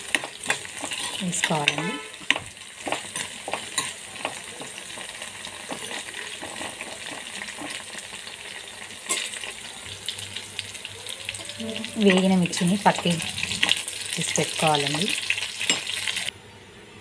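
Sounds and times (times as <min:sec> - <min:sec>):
spatula scraping a pan: 0:00.0 - 0:09.5
spices sizzling in hot oil: 0:00.0 - 0:16.3.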